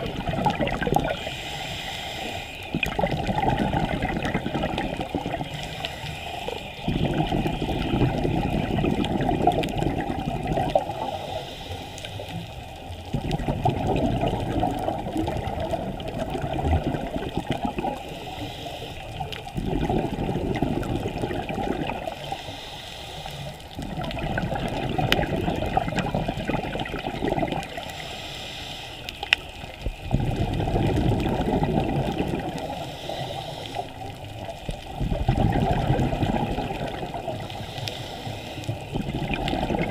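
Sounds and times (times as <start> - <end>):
scuba regulator bubbling exhalations: 0.0 - 22.6, 23.7 - 28.2, 29.3 - 39.9
regulator hissing inhalation: 1.0 - 3.2, 4.4 - 12.6, 17.4 - 19.6, 22.0 - 23.8, 27.6 - 30.1, 32.5 - 35.0, 37.3 - 39.2.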